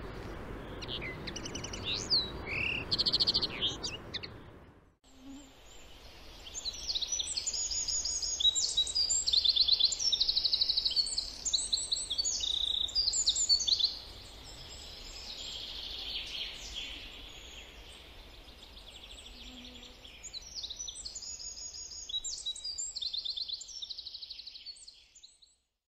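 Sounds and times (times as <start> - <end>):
songbirds trilling: 0.1 - 4.6.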